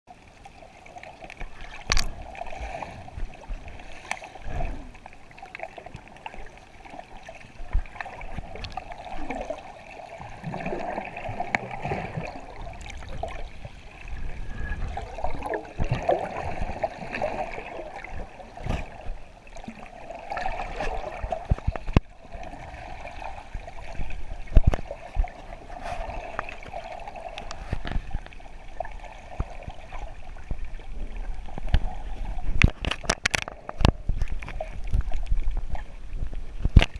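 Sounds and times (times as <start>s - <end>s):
sharp clicks and knocks: 32.6s - 35.4s.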